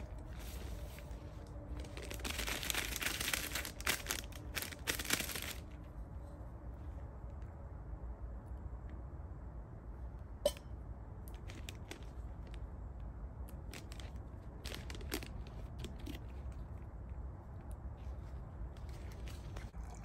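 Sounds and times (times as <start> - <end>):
plastic packet crinkling and tearing: 0.0 - 5.8, 11.3 - 12.6, 13.4 - 16.6.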